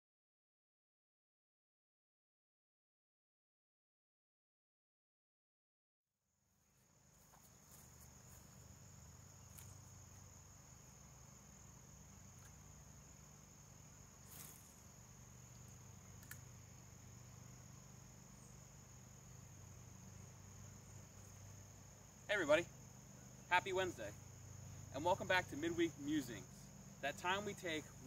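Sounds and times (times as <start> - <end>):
insect chorus chirring: 6.6 - 28.0.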